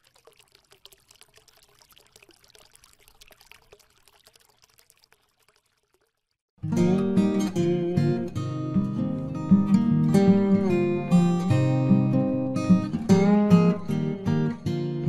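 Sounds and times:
faint trickling crackling: 0.0s - 6.5s
acoustic guitar music: 6.6s - 15.0s.

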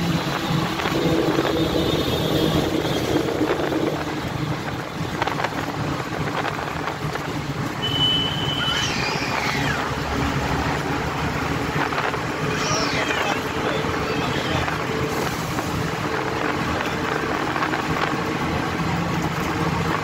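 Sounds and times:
wind noise: 0.0s - 7.8s, 8.7s - 20.0s
vehicle engine and tyres rumbling: 0.0s - 20.0s
short gliding squeals: 8.2s - 10.0s.

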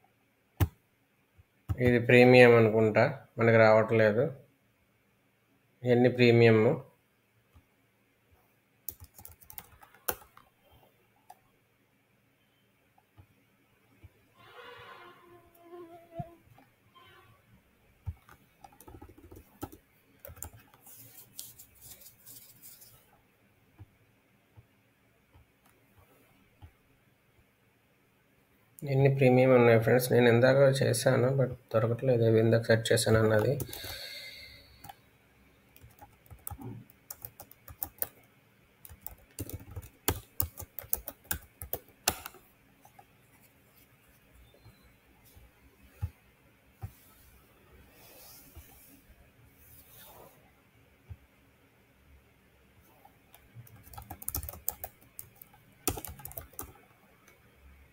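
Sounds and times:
faint keyboard typing: 1.4s - 2.2s, 8.8s - 11.5s, 18.0s - 23.1s, 32.8s - 44.6s, 52.8s - 57.4s.

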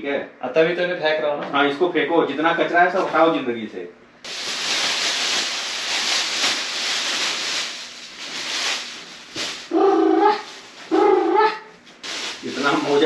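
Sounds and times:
clothes and plastic bag rustling: 4.2s - 13.0s.

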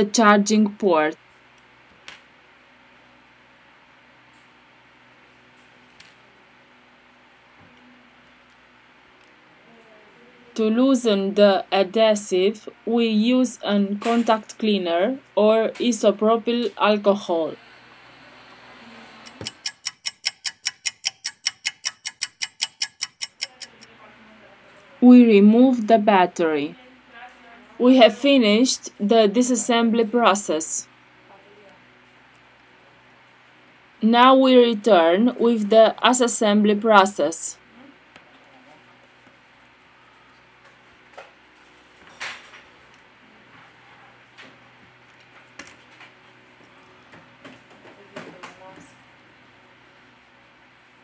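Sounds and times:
clock ticking: 19.3s - 23.9s.

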